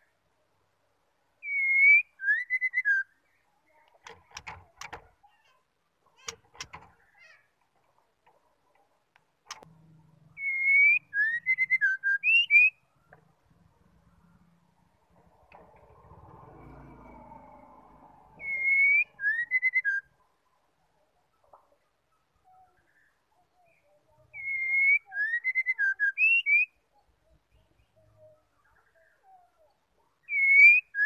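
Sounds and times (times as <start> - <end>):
bird whistling: 1.4 - 3.1, 10.4 - 12.8, 18.4 - 20.1, 24.3 - 26.8, 30.2 - 31.0.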